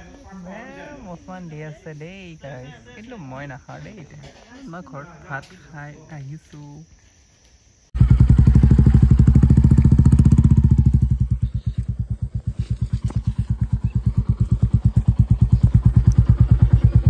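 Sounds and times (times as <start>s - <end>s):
motorcycle exhaust thumping: 8.0s - 17.0s.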